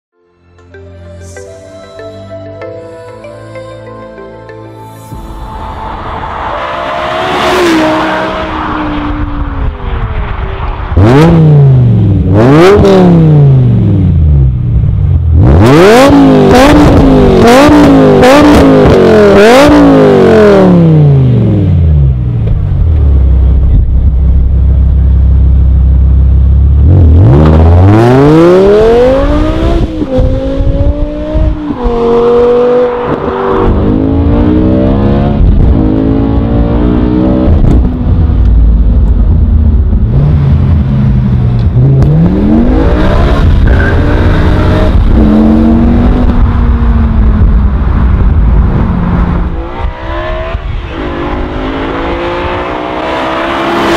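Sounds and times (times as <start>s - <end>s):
car engine throttle blips: 5.1s - 53.9s
car accelerating through gears: 6.4s - 9.6s, 11.0s - 14.4s, 15.3s - 22.1s, 26.8s - 37.9s, 40.1s - 53.9s.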